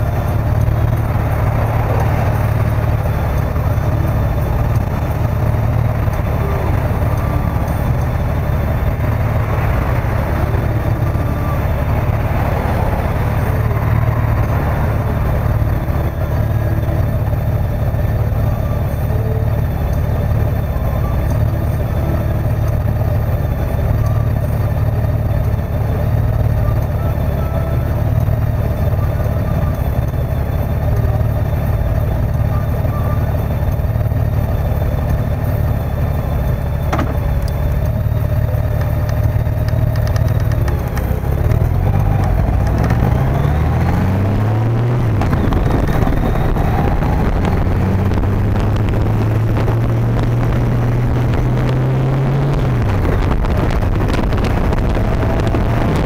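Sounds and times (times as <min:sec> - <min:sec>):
motorcycle engine idling and revving: 0:00.0 - 0:56.0.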